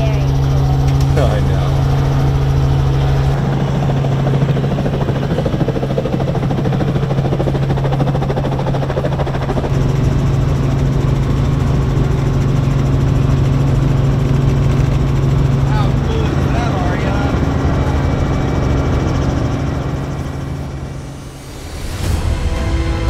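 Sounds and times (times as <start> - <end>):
helicopter engine and rotor hum: 0.0 - 23.0.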